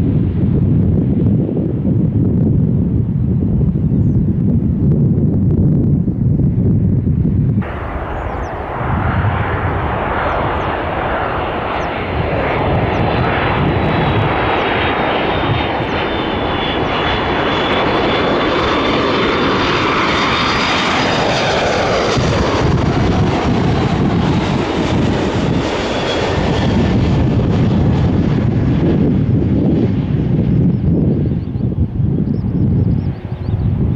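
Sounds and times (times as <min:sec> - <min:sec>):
airliner engine roar: 0:00.0 - 0:33.9
wind buffeting microphone: 0:00.0 - 0:33.9.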